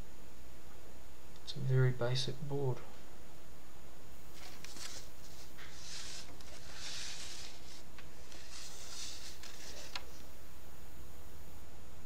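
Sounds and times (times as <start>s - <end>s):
steady low hum: 0.0s - 12.0s
foam rustling and scraping: 4.4s - 10.1s.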